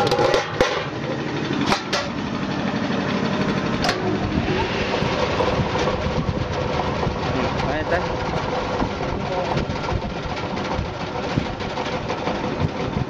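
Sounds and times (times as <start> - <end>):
electric motor running: 1.0 - 10.6.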